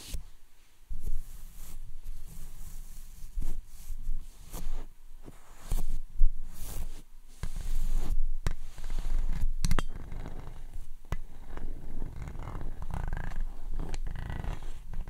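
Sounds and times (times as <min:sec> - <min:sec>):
brush rubbing on microphone: 0:00.0 - 0:09.5, 0:10.7 - 0:15.0.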